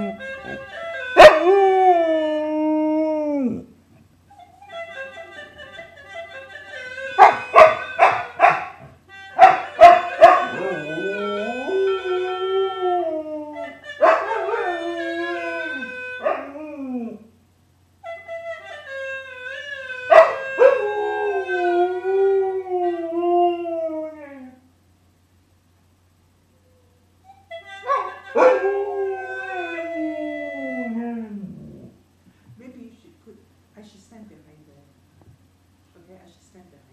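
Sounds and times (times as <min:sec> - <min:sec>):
dog yipping and howling: 0:01.2 - 0:02.2, 0:07.2 - 0:08.8, 0:09.4 - 0:17.2, 0:20.1 - 0:21.8, 0:26.8 - 0:31.9.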